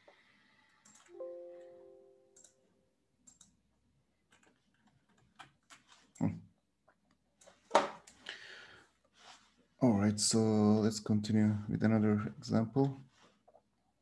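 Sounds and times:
keyboard and mouse clicks: 0:00.8 - 0:01.2, 0:02.4 - 0:02.6, 0:03.2 - 0:03.6, 0:04.3 - 0:06.3.

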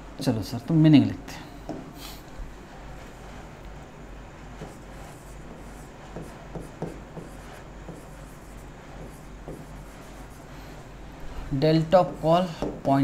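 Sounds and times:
low steady hum: 0:00.0 - 0:13.0
marker writing on whiteboard: 0:02.7 - 0:10.8, 0:11.8 - 0:13.0.

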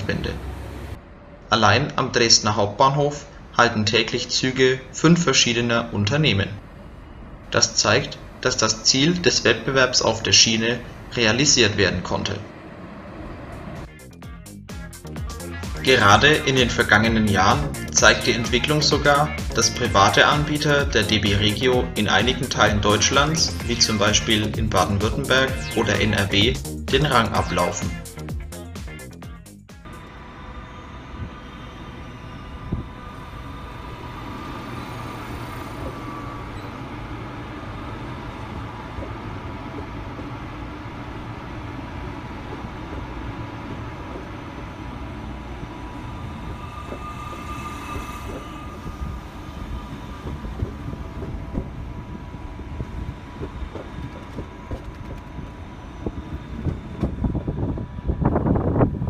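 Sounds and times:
electric train rumbling: 0:00.0 - 0:59.0.

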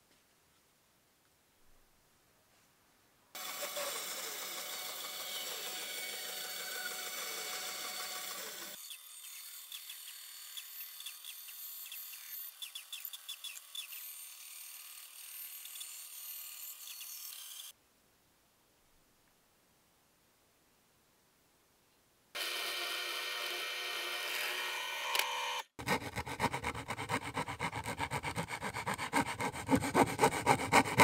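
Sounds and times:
band saw cutting wood: 0:03.4 - 0:17.7, 0:22.4 - 0:31.0.

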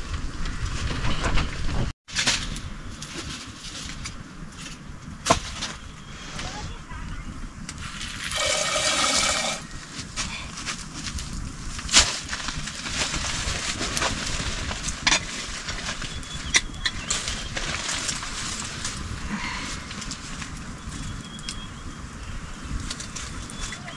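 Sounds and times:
wood fire crackling: 0:02.1 - 0:23.9
metallic grating of pots: 0:07.9 - 0:09.8.

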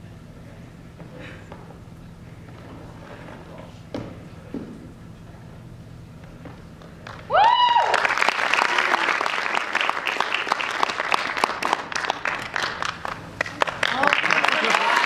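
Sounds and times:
audience applause: 0:07.0 - 0:15.0
high whooping cheer: 0:07.3 - 0:10.6.

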